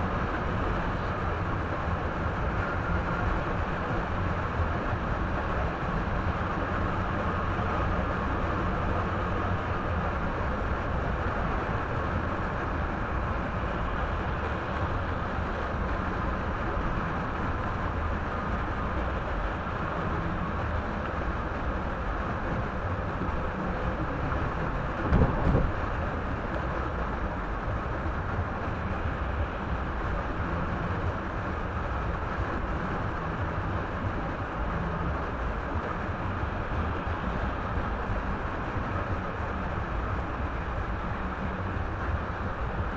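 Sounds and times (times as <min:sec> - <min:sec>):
car road and tyre noise: 0:00.0 - 0:42.9
loud thumps: 0:25.0 - 0:25.7.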